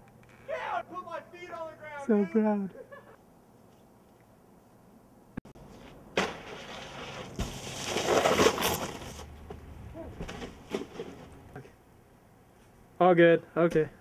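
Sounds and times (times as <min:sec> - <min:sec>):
snowboard scraping over snow: 0:05.8 - 0:09.2.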